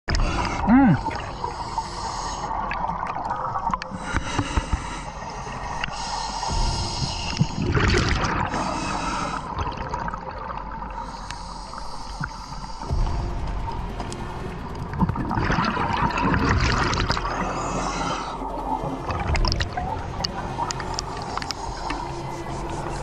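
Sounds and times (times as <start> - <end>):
regulator breathing hiss: 4.0 - 7.7, 11.0 - 13.1
exhaled bubbles rushing: 7.2 - 11.1, 14.8 - 23.0.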